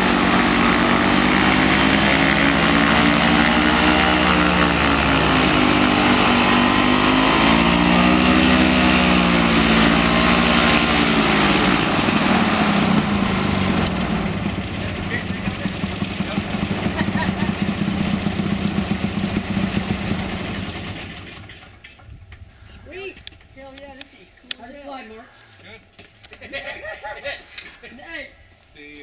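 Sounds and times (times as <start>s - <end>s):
two-stroke aircraft engine running: 0.0s - 21.8s.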